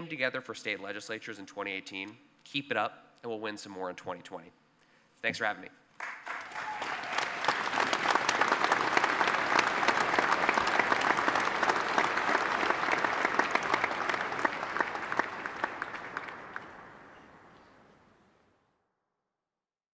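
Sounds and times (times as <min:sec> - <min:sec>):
audience applause: 0:06.0 - 0:17.4.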